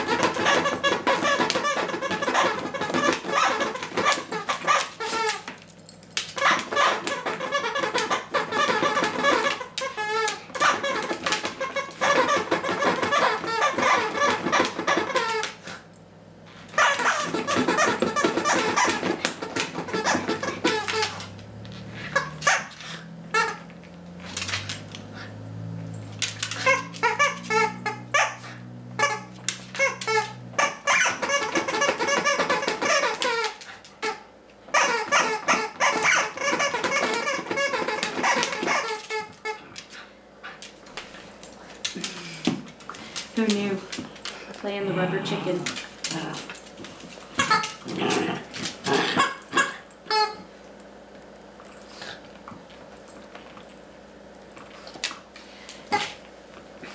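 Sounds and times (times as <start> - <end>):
rubber chicken toy squeaking: 0.0 - 5.5, 6.4 - 15.6, 16.8 - 21.2, 26.6 - 28.4, 29.0 - 39.6, 47.4 - 47.8, 49.2 - 50.4.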